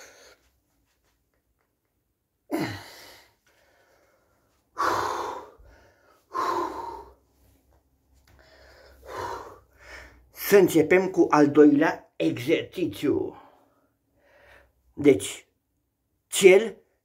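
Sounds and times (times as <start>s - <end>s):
man breathing heavily: 0.0s - 1.0s, 2.4s - 10.4s, 13.4s - 14.9s.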